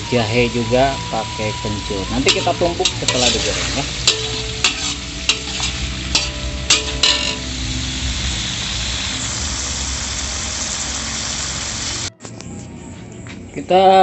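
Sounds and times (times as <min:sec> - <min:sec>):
food sizzling in hot oil: 0:00.0 - 0:12.1
metal spatula scraping a wok: 0:02.2 - 0:08.0.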